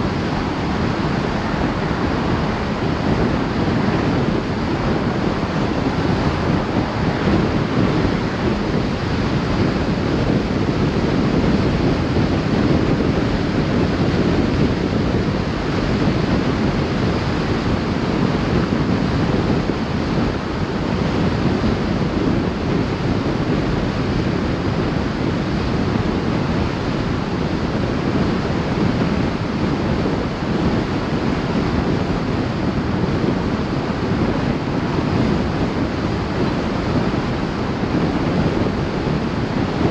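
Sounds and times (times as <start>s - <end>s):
tyre and wind noise: 0.0s - 39.9s
wind buffeting microphone: 0.0s - 39.9s.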